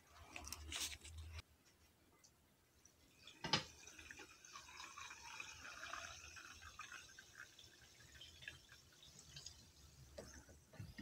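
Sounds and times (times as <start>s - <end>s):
sparkling water pouring into glass: 3.2s - 10.2s.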